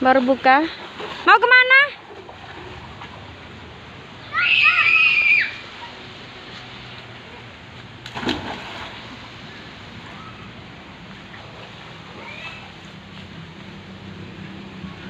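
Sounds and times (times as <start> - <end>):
child squealing: 4.3 - 5.6.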